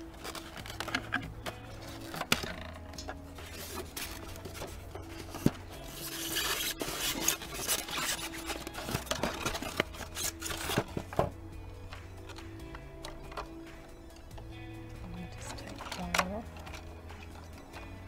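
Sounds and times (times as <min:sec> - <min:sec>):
foam and plastic scraping: 0:00.0 - 0:11.4
quiet background music: 0:00.0 - 0:18.0.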